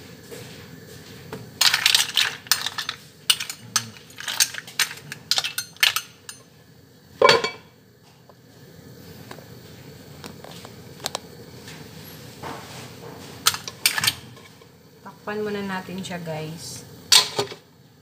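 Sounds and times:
metal clang with ring: 7.2s - 7.6s.

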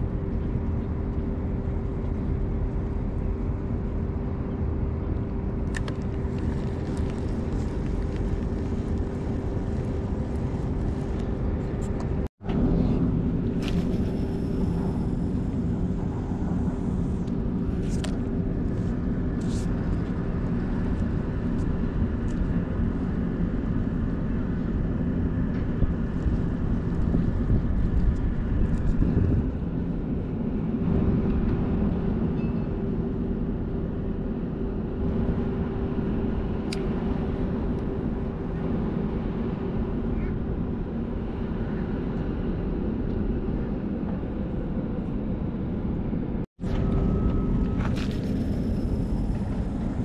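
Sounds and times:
ship engine drone: 0.0s - 50.0s
wind on microphone: 0.0s - 50.0s.

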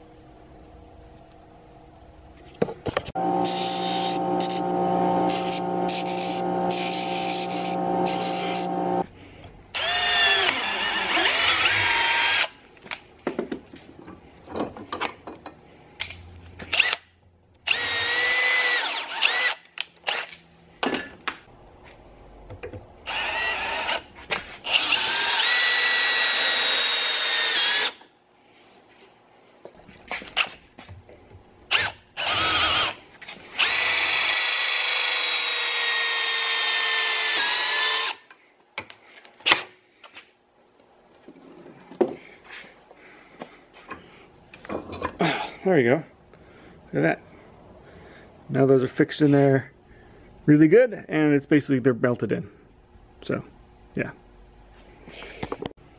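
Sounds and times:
cordless drill boring into plastic: 3.2s - 9.0s.

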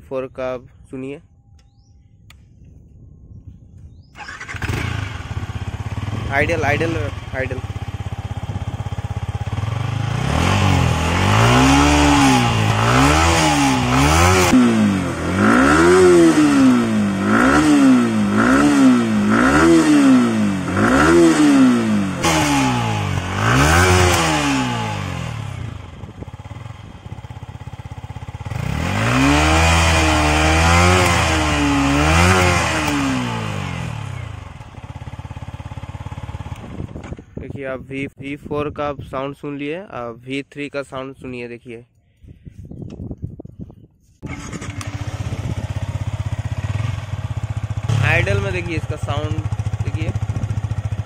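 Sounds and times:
motorcycle engine revving: 4.0s - 37.4s, 44.2s - 51.0s.

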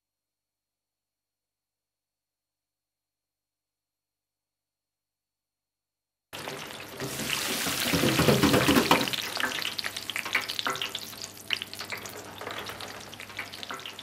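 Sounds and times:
chips sizzling in hot oil: 6.4s - 14.0s.

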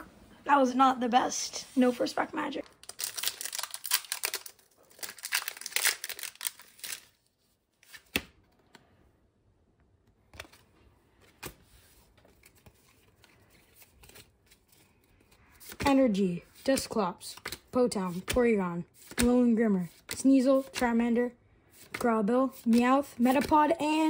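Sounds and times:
foil wrapper tearing and crinkling: 2.7s - 7.3s
cards clicking: 16.8s - 18.4s.

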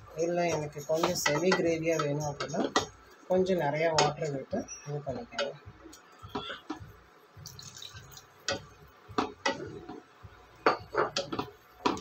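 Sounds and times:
spatula knocking against pot: 10.6s - 12.0s.

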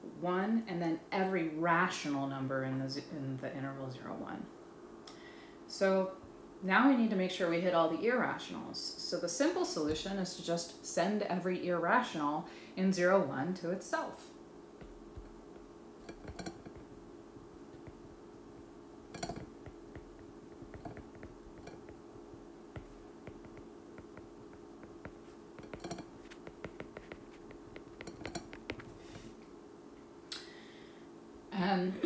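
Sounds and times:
faint steady hum: 0.0s - 32.0s
stylus tapping on glass screen: 14.8s - 17.0s, 17.7s - 18.2s, 19.1s - 29.2s.

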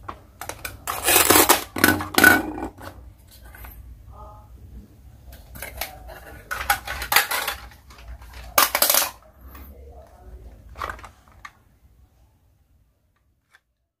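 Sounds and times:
plastic toy pieces clattering: 0.4s - 2.9s, 5.4s - 9.2s, 10.7s - 11.6s.

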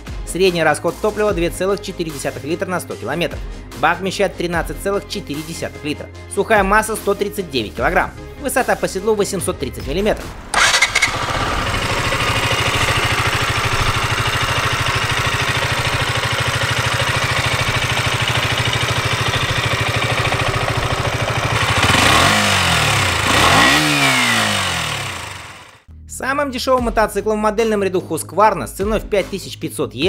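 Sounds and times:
motorcycle engine idling and revving: 10.5s - 25.9s.

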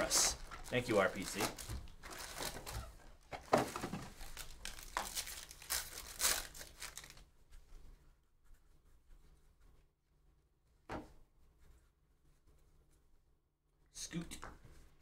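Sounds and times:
foil wrapper crinkling and tearing: 0.0s - 2.9s, 4.2s - 7.2s.

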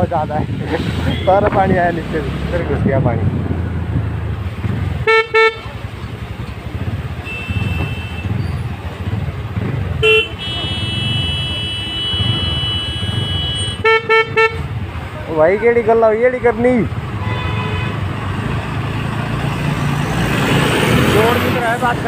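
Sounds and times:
electric horn beeps: 7.2s - 8.4s.

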